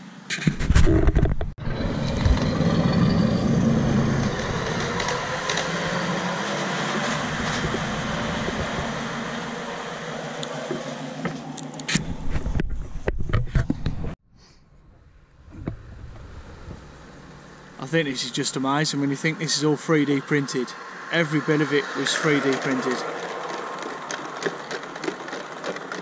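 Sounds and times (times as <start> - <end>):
miniature train running on track: 2.1 - 9.4, 21.4 - 26.0.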